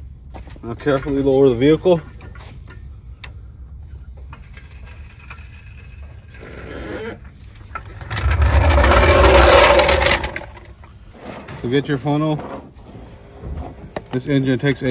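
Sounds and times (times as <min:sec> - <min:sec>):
jack dropping with rushing rumble: 0:07.8 - 0:10.8.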